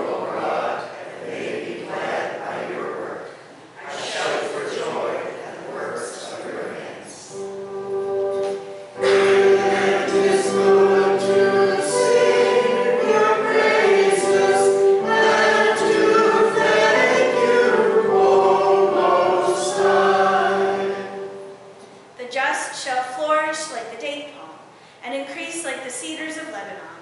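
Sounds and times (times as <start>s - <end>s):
congregation and choir singing: 0.0s - 3.2s, 3.8s - 22.0s.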